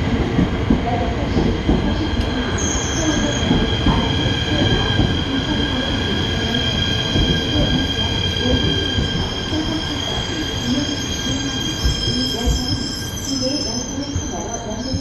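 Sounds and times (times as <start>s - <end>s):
train wheels rumbling: 0.0s - 15.0s
high-pitched brake squeal: 2.5s - 3.5s, 7.7s - 15.0s.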